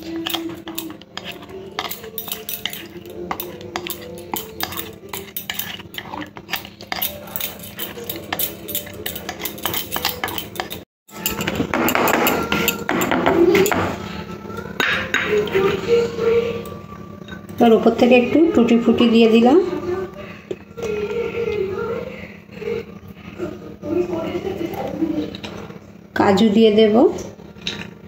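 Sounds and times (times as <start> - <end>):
whisk scraping and clinking metal: 0.0 - 13.9.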